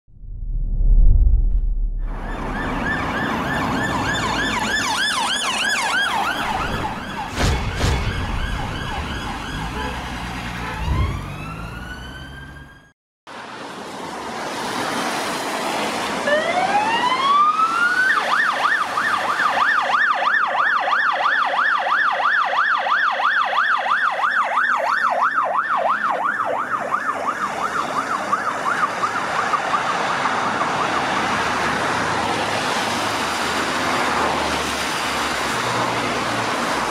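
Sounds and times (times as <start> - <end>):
low hit: 0.1 - 2.6
whooshes: 0.1 - 2.8
police siren wailing and yelping: 2.1 - 7.4, 8.0 - 10.0, 10.7 - 12.9, 16.2 - 32.5.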